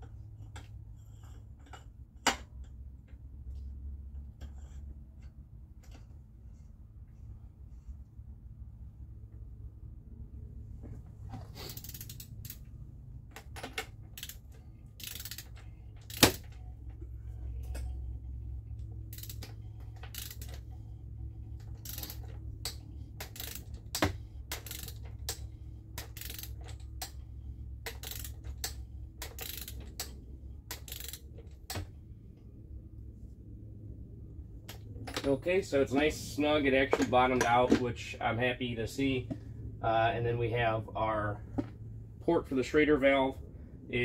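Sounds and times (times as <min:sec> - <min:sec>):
low hum: 0:00.0 - 0:44.0
socket ratchet clicking: 0:11.6 - 0:12.7, 0:13.4 - 0:16.6, 0:19.0 - 0:20.7, 0:21.5 - 0:27.2, 0:27.8 - 0:31.9.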